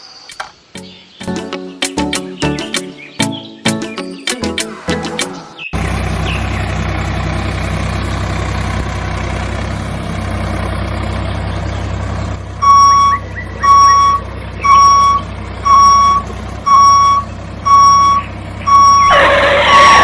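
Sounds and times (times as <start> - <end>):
low engine hum: 4.8 - 20.0
reversing alarm beeping: 12.6 - 20.0.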